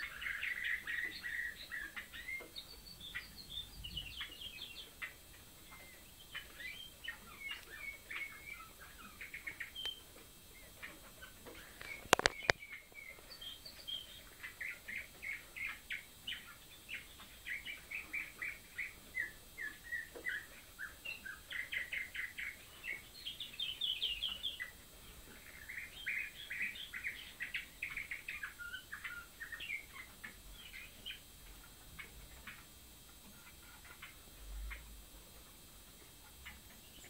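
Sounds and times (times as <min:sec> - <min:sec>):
canaries twittering: 0:00.0 - 0:37.0
sharp clicks: 0:11.8 - 0:12.6.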